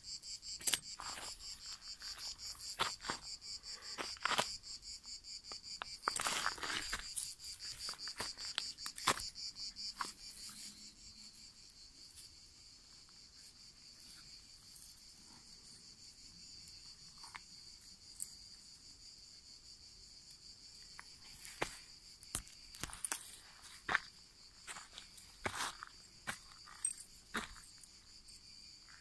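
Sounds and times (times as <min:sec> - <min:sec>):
insects chirring: 0:00.0 - 0:29.0
footsteps on dry grass: 0:01.0 - 0:04.6, 0:06.0 - 0:09.4, 0:22.4 - 0:28.2.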